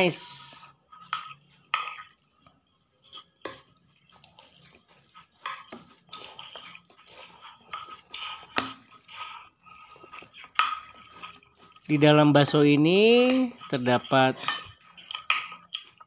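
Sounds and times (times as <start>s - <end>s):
soft slurping of noodles: 0.7s - 12.8s
cutlery clinking on ceramic bowl: 1.0s - 2.2s, 3.1s - 9.0s, 9.6s - 16.0s.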